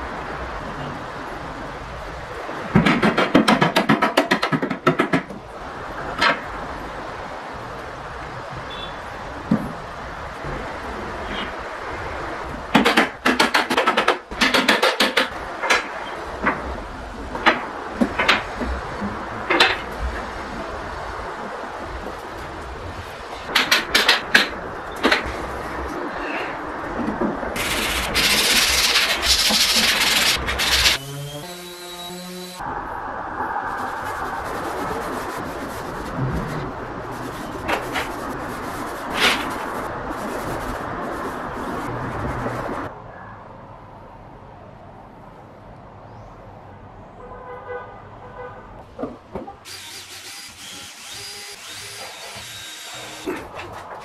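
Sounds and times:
sandpaper rubbing on wood: 27.6 - 32.6, 33.8 - 42.8, 49.7 - 53.7
cordless drill motor whine: 49.7 - 53.2.

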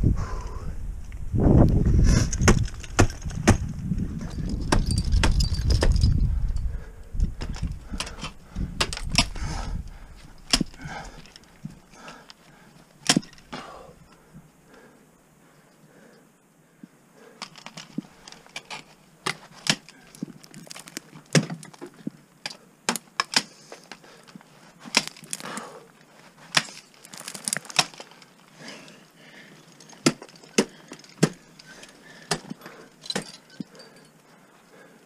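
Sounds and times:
ice axe striking ice: 2.4 - 3.7, 4.3 - 6.2, 13.0 - 13.6, 18.6 - 21.8, 22.4 - 23.5, 24.9 - 25.6, 26.5 - 28.1, 29.8 - 31.6, 32.2 - 33.6.

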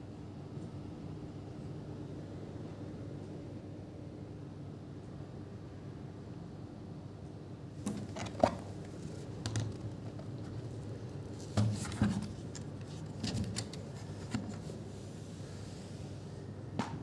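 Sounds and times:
hands handling objects: 7.8 - 14.9.

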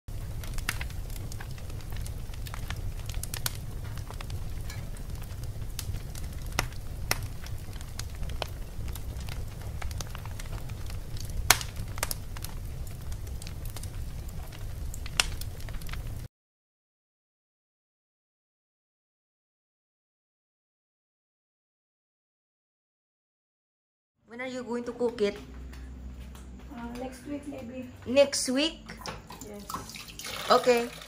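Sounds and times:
low rumble: 0.1 - 16.3
wood fire crackling and popping: 0.1 - 16.3, 24.3 - 31.0.

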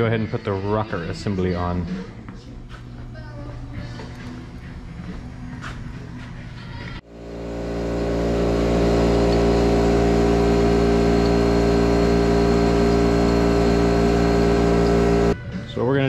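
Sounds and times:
engine drone: 7.0 - 15.4.

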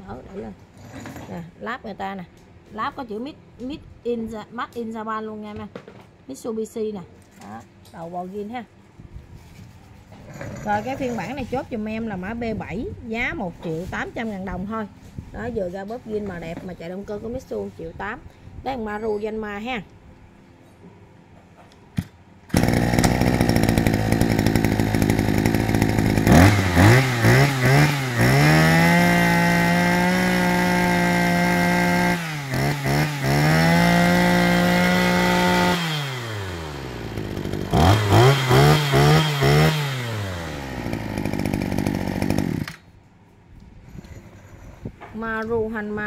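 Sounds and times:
brush-cutter engine revving: 22.5 - 42.8.

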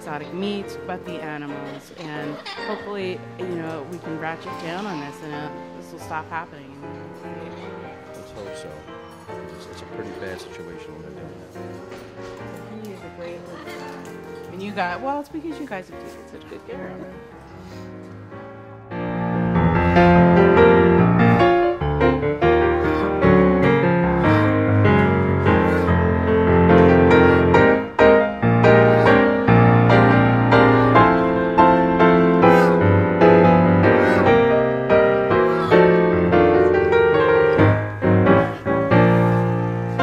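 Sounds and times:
piano music: 0.0 - 40.0.

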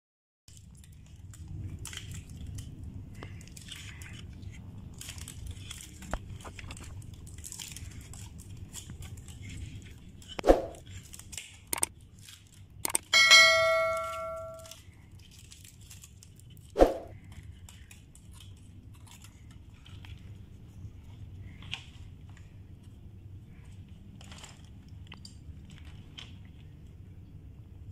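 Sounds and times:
plastic handling clicks: 11.7 - 11.9
bell chime sound effect: 13.2 - 14.7
sharp knocks: 13.2 - 14.7.

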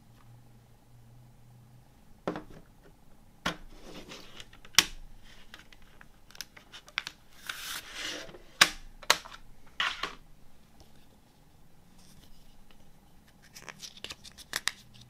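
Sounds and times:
paper booklet rustling: 12.0 - 15.0.

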